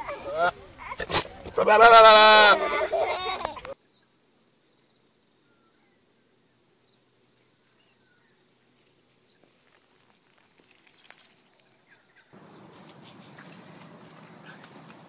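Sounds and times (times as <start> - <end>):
cats scampering over pine needles: 7.6 - 15.0.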